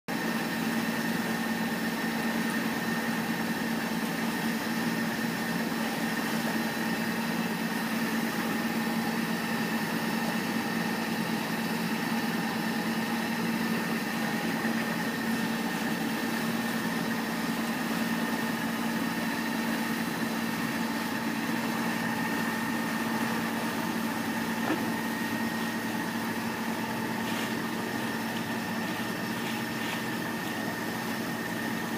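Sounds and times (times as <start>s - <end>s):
wind: 0.1s - 31.9s
diesel engine humming: 0.2s - 31.9s.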